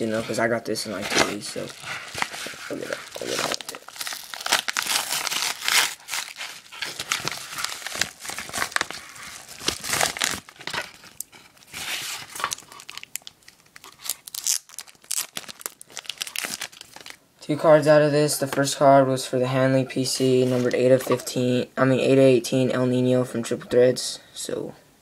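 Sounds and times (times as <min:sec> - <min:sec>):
wrapped cards rustling: 0:00.1 - 0:17.2
bubble mailer tearing and crinkling: 0:00.9 - 0:17.2.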